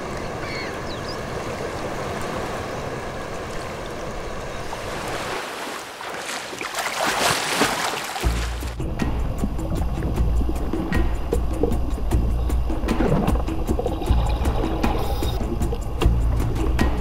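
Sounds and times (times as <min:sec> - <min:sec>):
rushing splash of churning water: 0:00.0 - 0:08.8
sea water lapping: 0:00.0 - 0:16.8.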